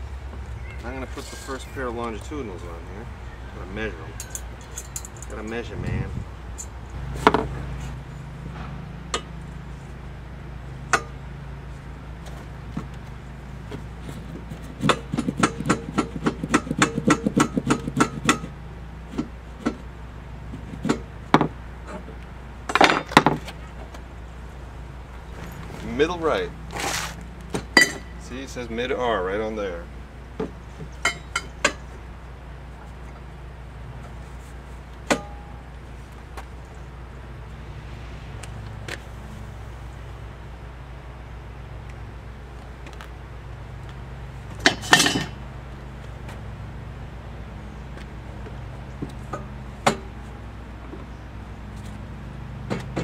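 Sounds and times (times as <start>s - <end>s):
steady low hum: 0.0s - 22.8s, 23.6s - 52.5s
metal clatter: 4.2s - 5.5s
metal clank with ring: 27.8s - 28.2s, 31.0s - 31.8s, 35.1s - 35.6s.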